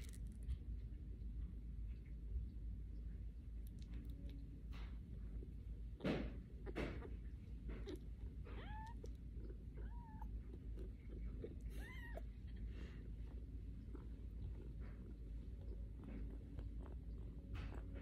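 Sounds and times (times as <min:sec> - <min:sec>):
kitten mewing: 0:06.0 - 0:13.1.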